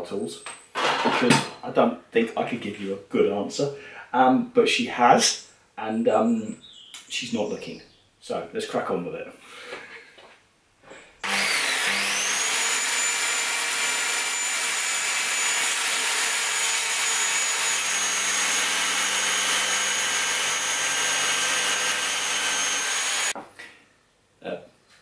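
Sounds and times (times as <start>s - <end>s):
circular saw cutting: 11.2s - 23.4s.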